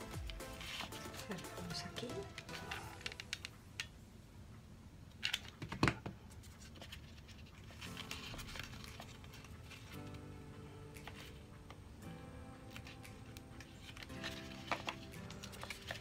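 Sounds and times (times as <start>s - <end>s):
quiet background music: 0.0s - 16.0s.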